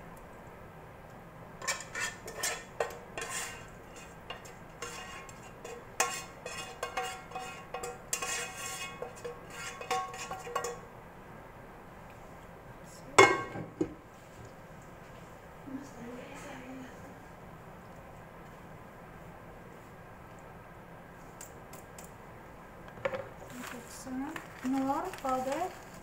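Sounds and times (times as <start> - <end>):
utensil scraping a frying pan: 1.6 - 10.9.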